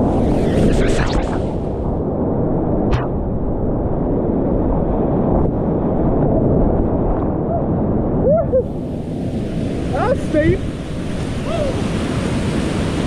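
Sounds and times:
whitewater rushing: 9.7 - 13.0.

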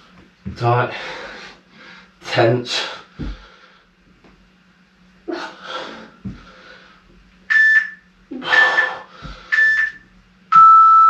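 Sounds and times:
heavy breathing: 0.8 - 4.0, 5.3 - 7.2, 8.3 - 9.7
short electronic timer beeps: 9.5 - 11.0.

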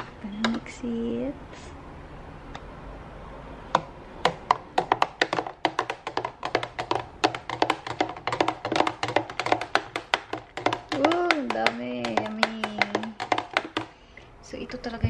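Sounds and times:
spoon clinking against plastic jug: 5.2 - 14.0.

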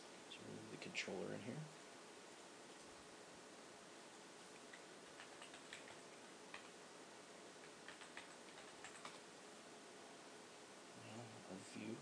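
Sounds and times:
steady low hiss: 0.0 - 12.0
keyboard typing clicks: 4.6 - 6.8, 7.6 - 9.2.

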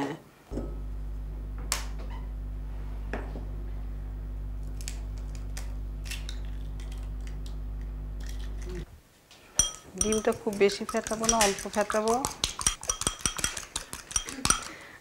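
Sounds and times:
electrical hum: 0.5 - 9.0
eggshell cracking: 4.6 - 7.4, 8.2 - 8.8, 9.8 - 14.7
egg tapped on glass bowl: 9.6 - 14.7.

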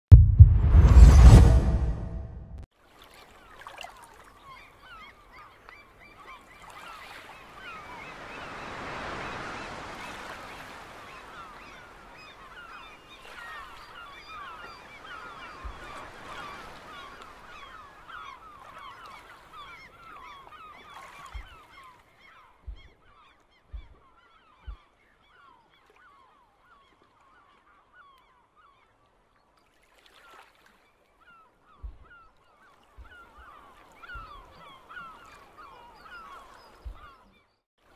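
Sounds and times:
rushing noise: 0.1 - 2.6
soft low thumps: 0.1 - 2.6, 31.8 - 32.0.

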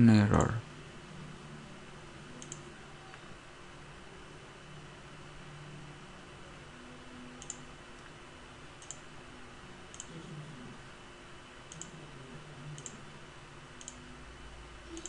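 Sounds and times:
faint hiss and low hum: 0.0 - 15.0
computer mouse clicks: 2.4 - 2.7, 7.4 - 8.1, 8.8 - 9.0, 9.9 - 10.2, 11.7 - 12.0, 12.7 - 13.0, 13.8 - 14.0.

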